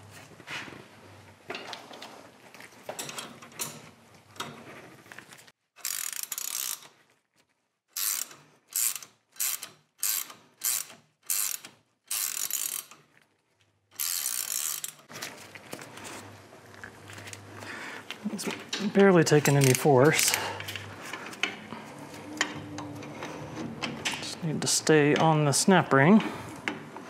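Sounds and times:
socket ratchet clicking: 0:08.0 - 0:13.0.

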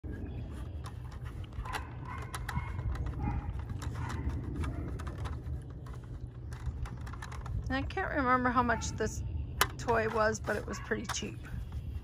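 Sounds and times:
steady low rumble: 0:00.0 - 0:12.0
plastic toy clicking and knocking: 0:00.8 - 0:07.7.

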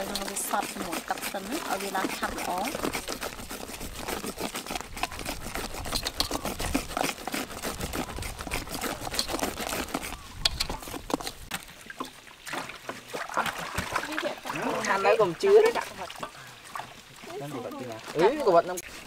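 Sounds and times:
wire whisk scraping in bowl: 0:00.0 - 0:11.4.

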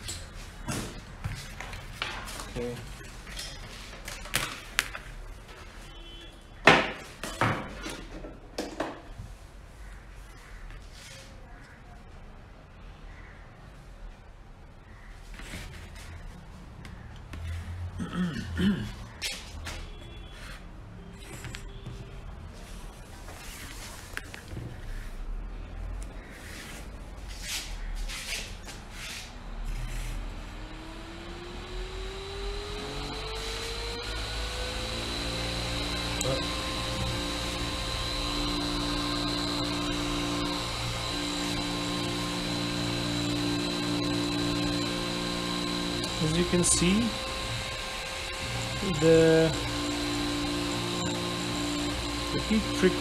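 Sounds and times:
exhaust fan spinning up: 0:29.8 - 0:53.0.

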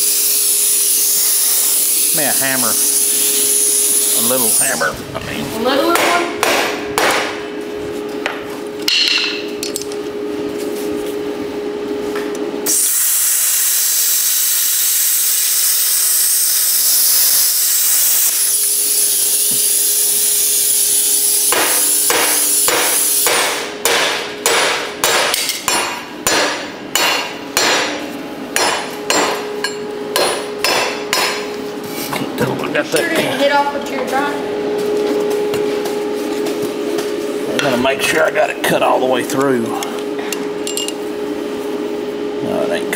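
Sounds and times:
plasma cutter hissing: 0:00.0 - 0:04.9, 0:12.6 - 0:23.4.

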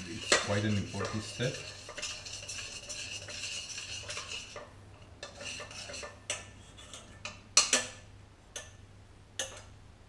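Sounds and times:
spoon scraping pot: 0:00.0 - 0:08.0
utensils clinking against pot: 0:00.0 - 0:08.0, 0:09.4 - 0:09.7.

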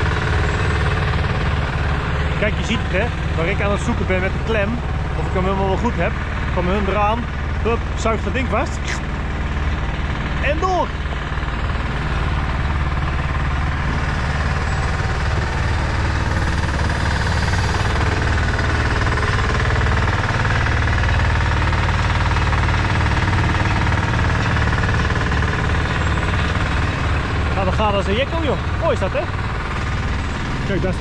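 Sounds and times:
diesel engine chugging: 0:00.0 - 0:31.0.

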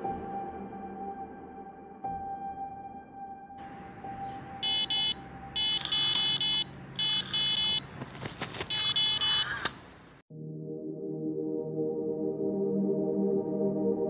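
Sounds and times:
electronic bite alarm buzzing: 0:04.6 - 0:07.9, 0:08.6 - 0:09.9.

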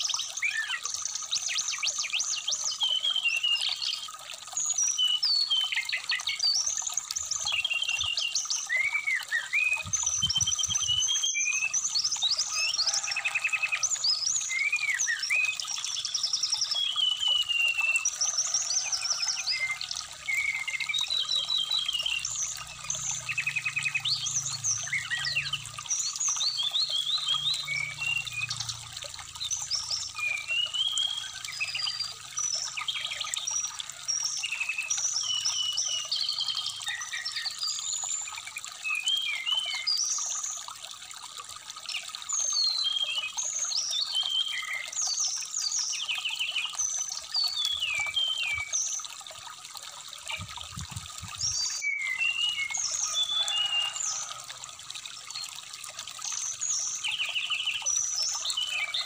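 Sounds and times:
stream trickling: 0:00.0 - 0:59.0
bird singing: 0:13.6 - 0:40.1, 0:42.4 - 0:49.0, 0:51.4 - 0:54.2.

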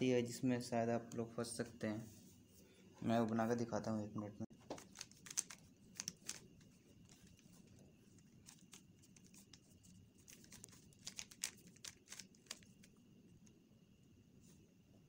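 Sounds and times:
puzzle cube plastic clicks: 0:04.7 - 0:07.5, 0:08.4 - 0:09.6, 0:10.2 - 0:13.0.

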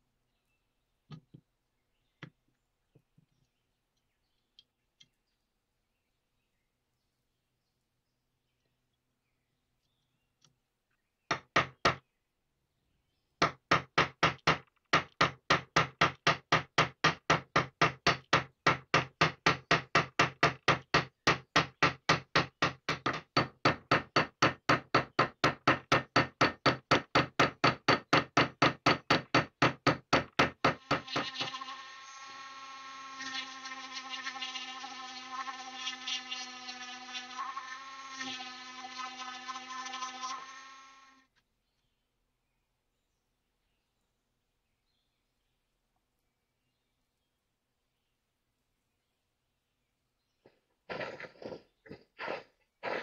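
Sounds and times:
rotary tool whine: 0:30.8 - 0:41.3.

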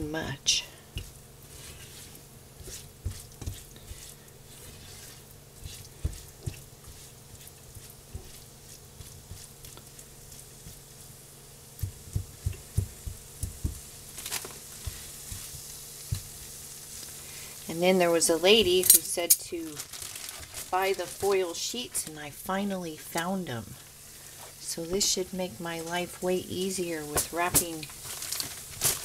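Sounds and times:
spatula scraping and tapping pan: 0:00.9 - 0:10.9
sausage sizzling in skillet: 0:00.9 - 0:21.9.

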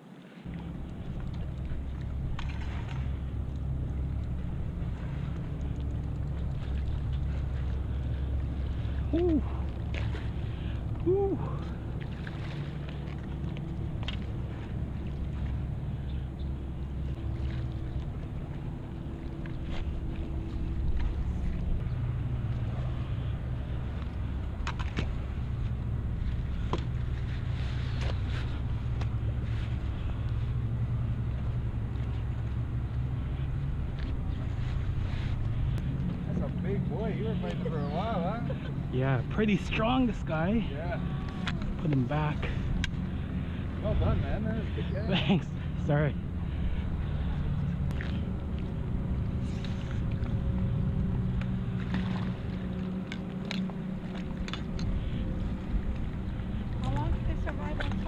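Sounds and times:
engine drone: 0:00.3 - 0:58.0
landing net splashing in water: 0:51.7 - 0:53.7.

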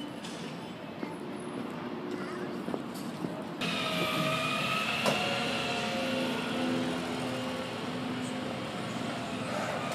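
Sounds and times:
high whine: 0:03.6 - 0:09.9
truck engine running: 0:03.6 - 0:09.9.

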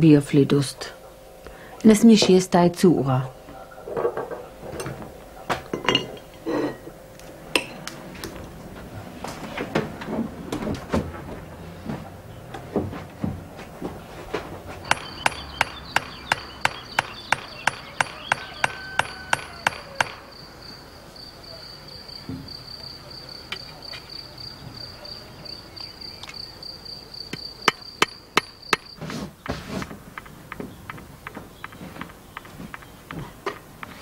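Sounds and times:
crickets chirping: 0:14.7 - 0:34.0
hammer tapping scythe blade: 0:14.8 - 0:20.2.

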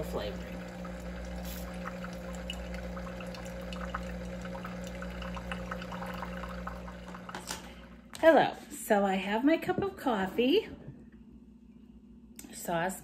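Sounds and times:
coffee streaming into mug: 0:00.0 - 0:08.1
coffee maker pump hum: 0:00.0 - 0:08.5.

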